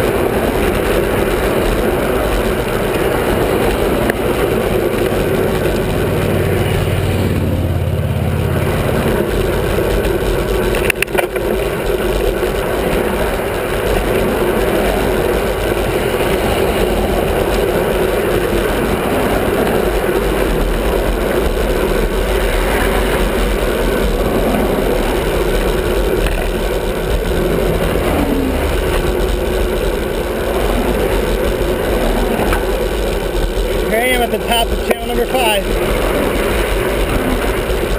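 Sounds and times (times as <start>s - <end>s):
cars passing close: 0.0s - 37.9s
road noise: 0.0s - 37.9s
rushing wind: 0.0s - 37.9s.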